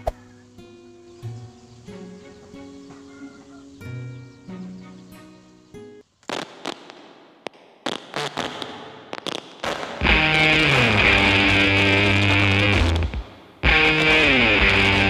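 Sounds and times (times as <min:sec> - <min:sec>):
loud band music: 0:10.0 - 0:15.0
plucked guitar: 0:10.0 - 0:15.0.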